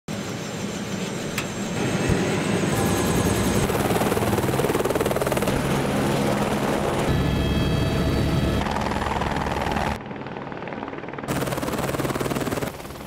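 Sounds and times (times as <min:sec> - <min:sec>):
helicopter rotor beating: 0:00.1 - 0:13.0.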